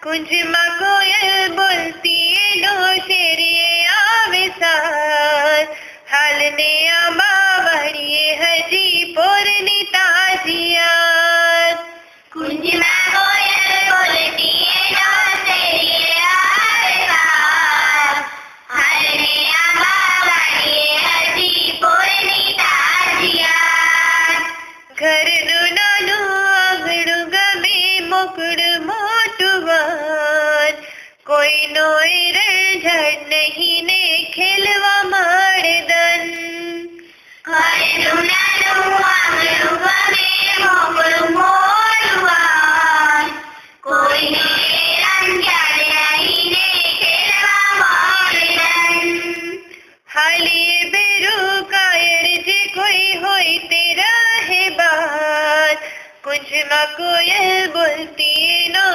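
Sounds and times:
woman singing: 0.0s - 58.9s.

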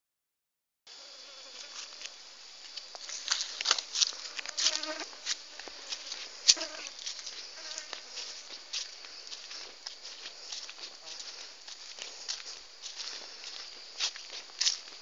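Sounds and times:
insect buzz: 0.9s - 15.0s
footsteps crunching on dry ground: 1.5s - 15.0s.

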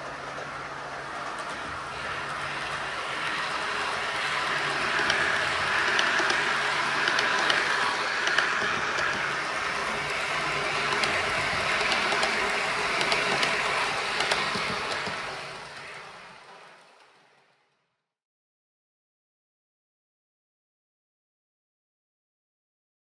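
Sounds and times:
model train running on track: 0.0s - 18.1s.

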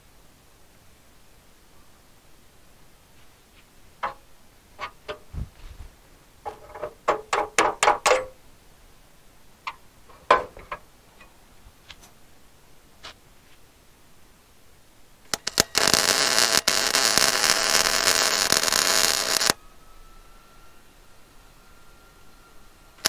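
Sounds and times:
sharp ringing metal knocks: 4.0s - 4.2s, 6.5s - 8.4s.

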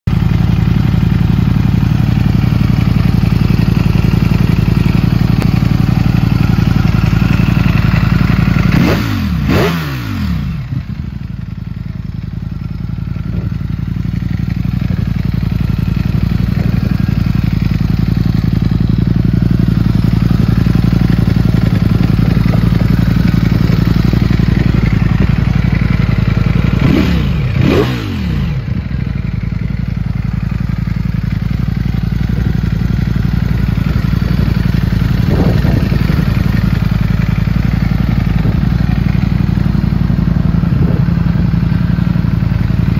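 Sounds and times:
motorcycle engine idling: 0.1s - 42.9s
engine revving: 6.2s - 10.9s, 26.5s - 28.8s.

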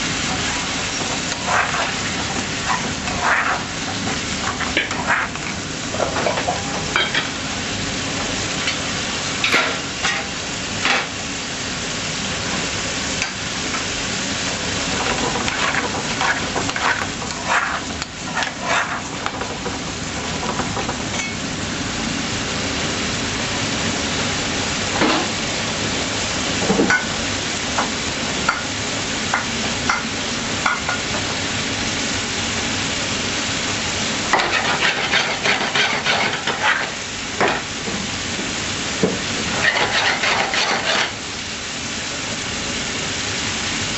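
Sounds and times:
curry sizzling in frying pan: 0.0s - 43.9s
metal spoon scraping pan: 0.9s - 6.3s, 15.0s - 19.5s, 34.3s - 37.0s, 39.5s - 41.2s.

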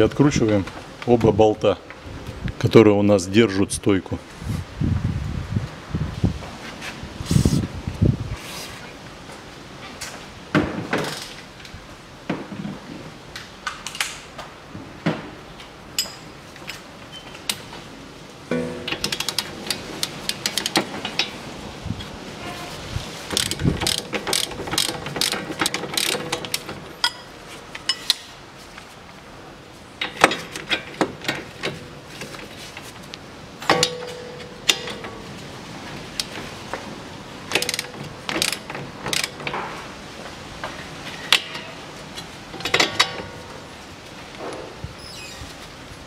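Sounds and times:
ratchet wrench clicking: 23.3s - 26.7s, 37.5s - 39.4s.

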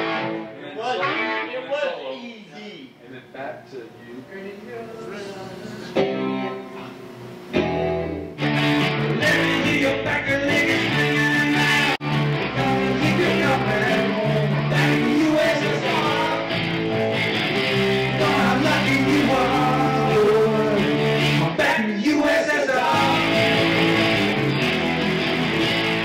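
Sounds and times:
rock band playing: 0.0s - 1.6s, 6.0s - 6.9s, 7.5s - 26.0s
man singing: 9.1s - 16.6s, 18.0s - 24.0s.

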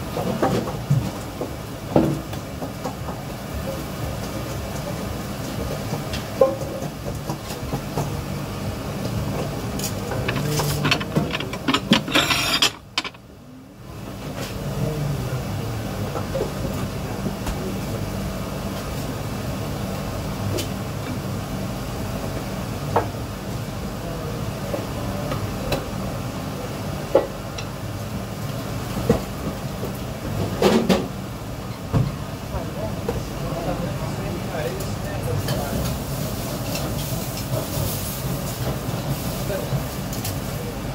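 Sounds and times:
low mechanical hum: 0.0s - 40.9s
dishes clattering: 9.8s - 13.2s
clinks and knocks: 10.1s - 13.2s.

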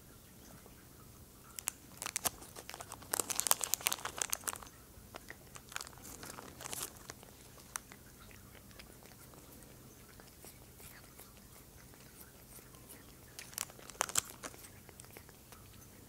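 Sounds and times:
foil packet crinkling: 1.5s - 9.5s, 12.9s - 15.3s.

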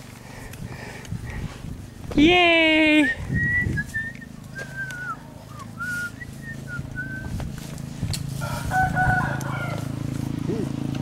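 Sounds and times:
person whistling: 3.0s - 7.3s.

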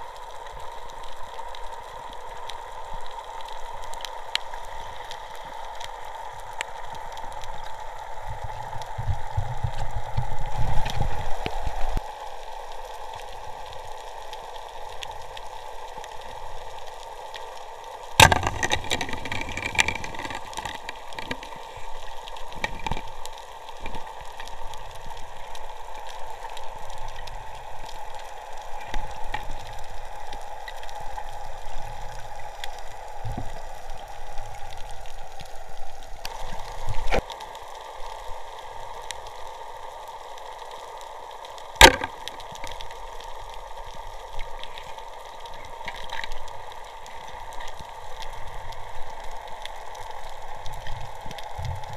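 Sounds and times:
sharp crack: 18.2s - 21.4s, 41.8s - 42.7s.

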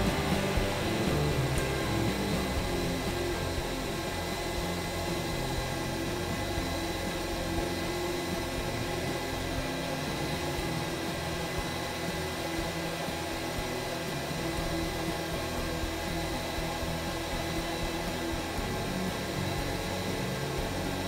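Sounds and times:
exhaust fan rushing air: 0.0s - 21.0s
fan high whine: 0.0s - 21.0s.

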